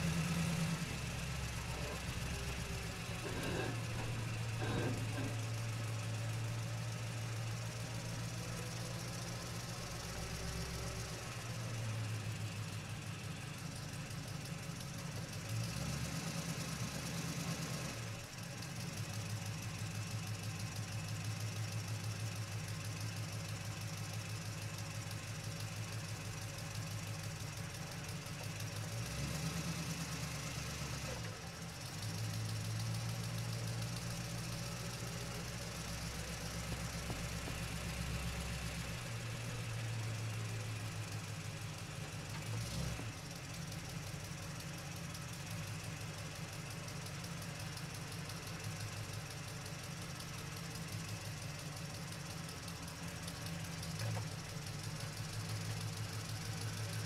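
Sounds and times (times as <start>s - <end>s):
toy car electric motor droning: 1.6s - 5.4s.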